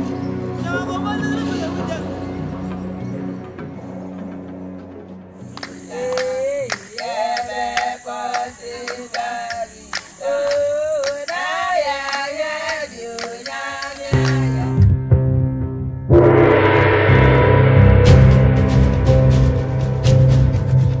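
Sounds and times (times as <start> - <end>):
group of voices singing: 5.6 - 14.9
deep steady tone: 14.2 - 20.2
sharp beat: 14.2 - 21.0.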